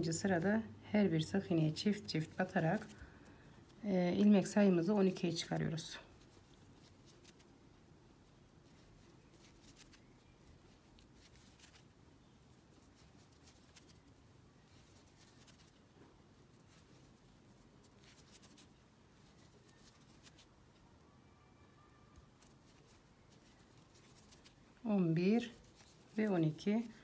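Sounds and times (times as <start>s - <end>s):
crochet hook working yarn: 8.2s - 20.8s, 21.9s - 27.0s.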